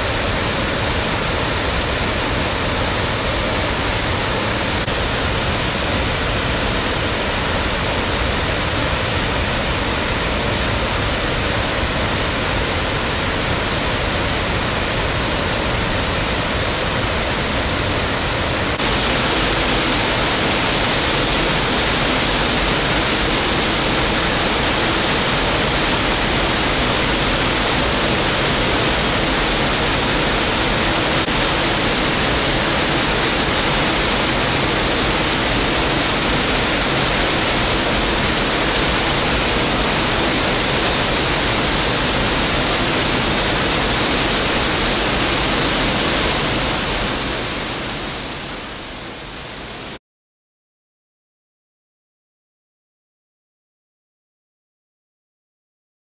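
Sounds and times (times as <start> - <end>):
waterfall pouring: 18.8 - 47.4.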